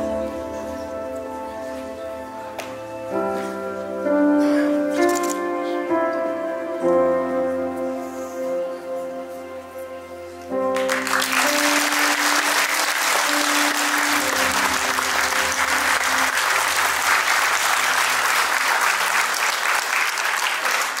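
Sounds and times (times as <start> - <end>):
music ending on held chord: 10.7 - 18.5
audience applause: 10.7 - 21.0.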